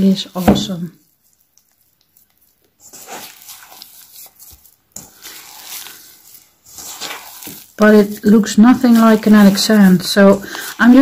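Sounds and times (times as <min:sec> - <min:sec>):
wet sand squelching in hand: 0:02.8 - 0:11.0.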